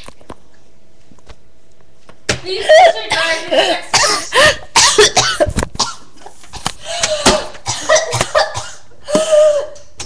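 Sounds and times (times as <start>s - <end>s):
girl coughing: 2.6s - 6.1s, 7.2s - 9.8s.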